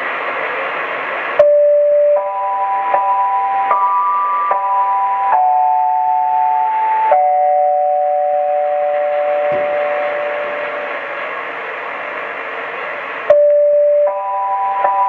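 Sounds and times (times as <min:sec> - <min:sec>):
radio hiss: 0:00.0 - 0:01.4, 0:08.4 - 0:13.3
held electronic tones: 0:01.4 - 0:11.2.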